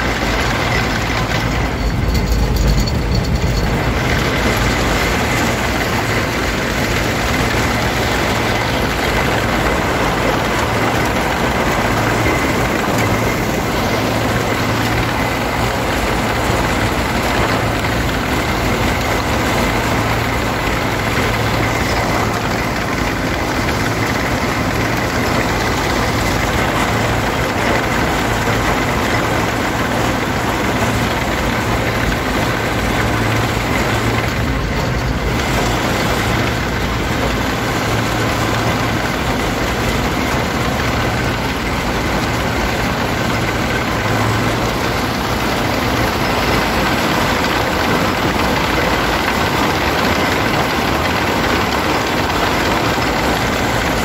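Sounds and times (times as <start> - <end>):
diesel engine running: 0.0 - 54.0
steel tracks clattering: 0.0 - 54.0.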